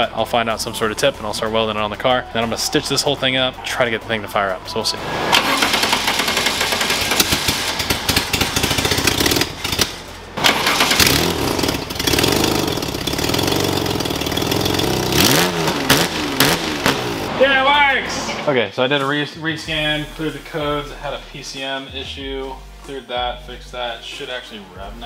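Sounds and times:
car engine starting and revving: 0:04.9 - 0:17.4.

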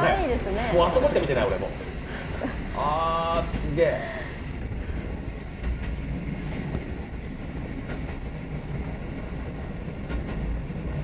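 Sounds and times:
train low rumble: 0:00.0 - 0:11.0
wheels clicking on track: 0:03.3 - 0:11.0.

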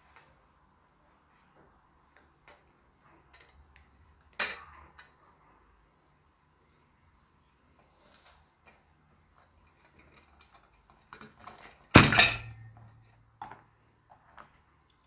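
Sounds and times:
loud metal clatter: 0:12.0 - 0:12.7.

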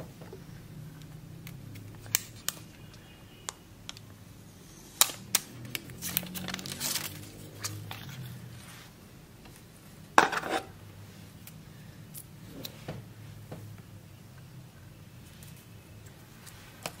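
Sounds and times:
plastic film crinkling: 0:05.0 - 0:08.2.

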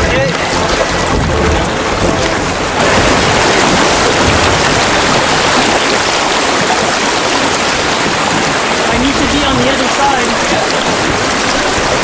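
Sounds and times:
river rapids rushing over rocks: 0:00.3 - 0:12.0.

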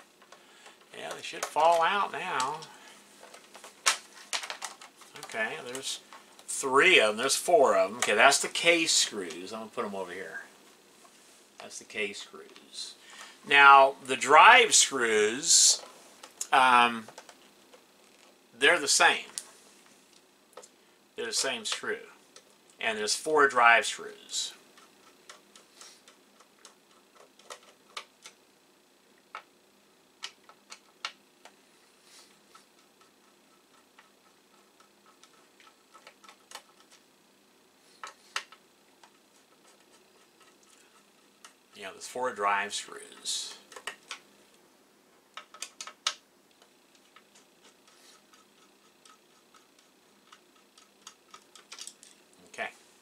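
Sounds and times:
faint screw ticks: 0:45.3 - 0:52.2.

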